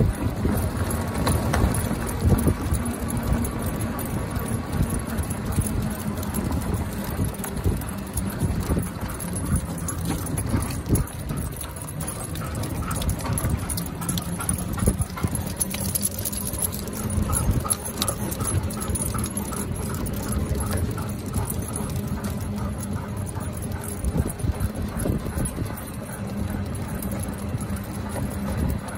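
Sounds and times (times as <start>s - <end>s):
collar tags jingling: 0.0s - 28.9s.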